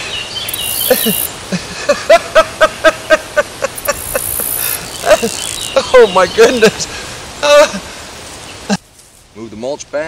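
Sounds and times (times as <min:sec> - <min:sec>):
animal chirping: 0:00.5 - 0:01.3, 0:03.8 - 0:05.9.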